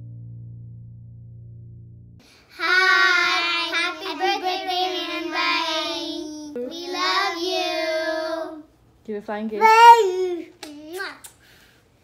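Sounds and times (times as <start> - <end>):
girls singing high notes: 2.4 - 8.6.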